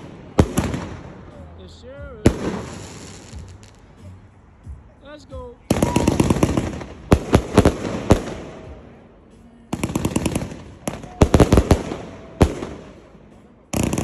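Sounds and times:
firework volleys of sharp bangs: 0:00.0 - 0:01.5, 0:02.2 - 0:03.9, 0:05.7 - 0:09.1, 0:09.7 - 0:14.0.

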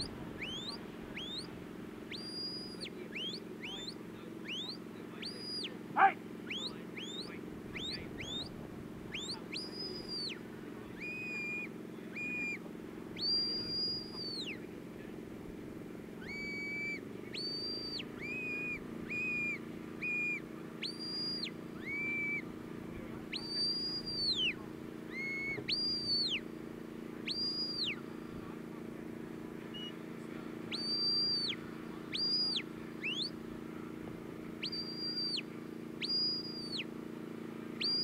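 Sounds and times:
shepherd's whistle blasts: 0:00.4 - 0:01.5, 0:02.1 - 0:05.7, 0:09.1 - 0:10.4, 0:13.2 - 0:14.6, 0:16.2 - 0:22.4, 0:23.3 - 0:26.4, 0:30.7 - 0:33.3, 0:34.6 - 0:35.4, 0:36.0 - 0:36.8, 0:37.8 - 0:38.0.

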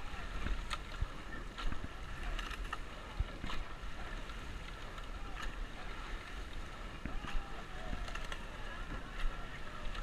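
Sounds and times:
rushing water: 0:00.0 - 0:10.0
wind rumble on microphone: 0:00.0 - 0:10.0.

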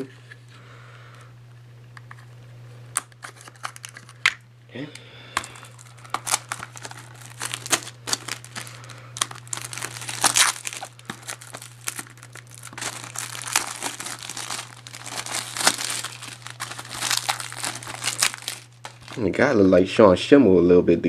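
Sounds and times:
steady low hum: 0:00.0 - 0:21.0
plastic wrap tearing and crinkling: 0:03.0 - 0:04.2, 0:05.4 - 0:19.4.

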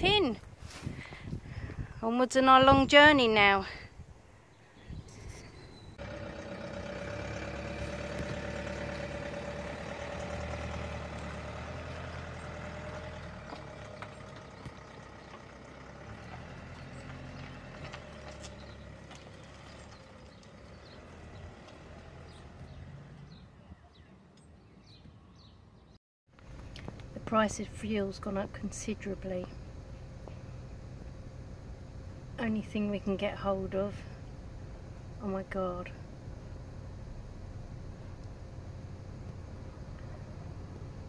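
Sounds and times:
van engine driving off: 0:05.7 - 0:23.6, 0:26.3 - 0:41.0.

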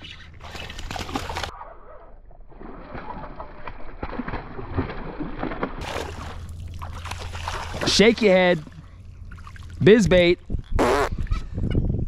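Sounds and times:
fish splashing at water surface: 0:02.6 - 0:08.2.

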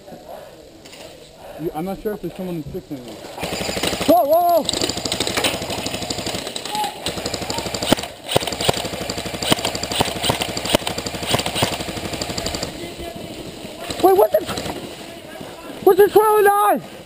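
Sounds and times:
airsoft rifles firing full-auto: 0:03.4 - 0:15.5.

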